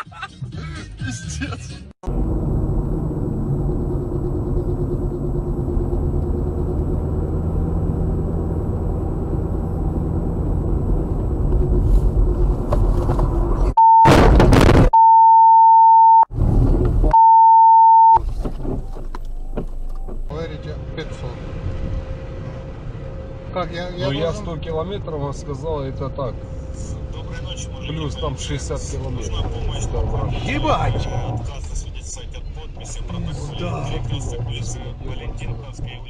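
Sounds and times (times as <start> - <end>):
car engine and tyre rumble: 2.0 - 13.8, 16.3 - 36.0
steady single-pitch beep: 13.8 - 14.1, 15.0 - 16.3, 17.1 - 18.2.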